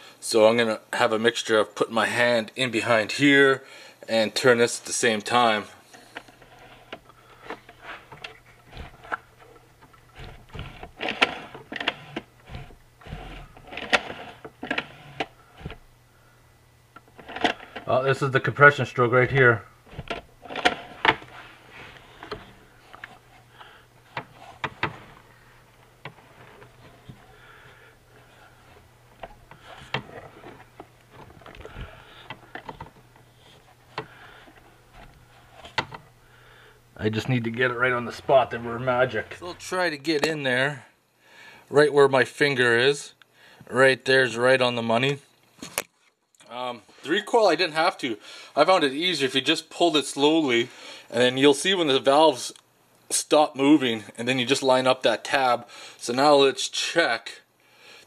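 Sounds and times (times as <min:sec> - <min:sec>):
engine turned over by hand: 0:06.2 - 0:16.0, 0:17.0 - 0:17.9, 0:19.2 - 0:36.4.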